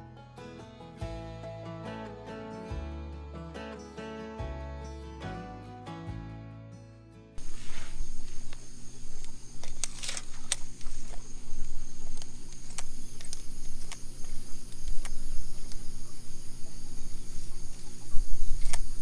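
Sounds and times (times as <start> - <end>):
insects chirring: 7.4 - 19.0
low hum: 7.4 - 19.0
sharp clicks: 8.5 - 16.6, 17.7 - 19.0.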